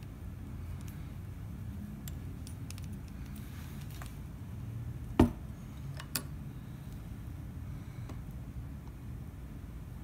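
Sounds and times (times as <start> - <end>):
small metal clicks and taps: 2.0 - 3.4.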